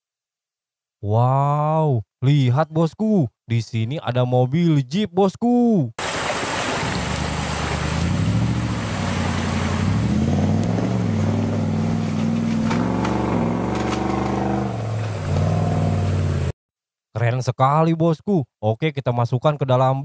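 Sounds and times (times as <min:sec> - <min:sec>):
water rushing and splashing: 0:06.0 - 0:16.5
off-road vehicle engine revving: 0:06.8 - 0:16.6.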